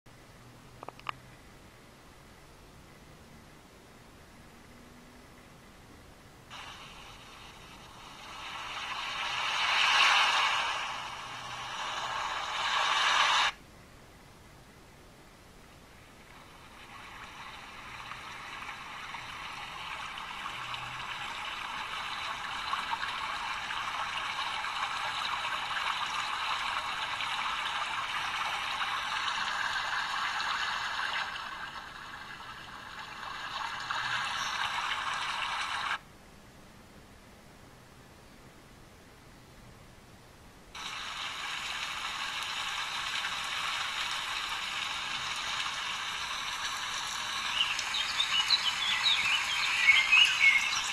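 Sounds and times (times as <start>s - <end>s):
recorded rain through phone speaker: 6.5s - 13.6s, 16.0s - 36.0s, 40.7s - 50.9s
running water stream: 6.5s - 13.6s, 16.0s - 36.0s, 40.8s - 50.9s.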